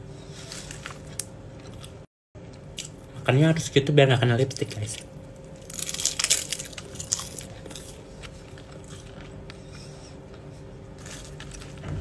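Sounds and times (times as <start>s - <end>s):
crisp food crunching: 4.3s - 9.6s, 10.3s - 11.9s.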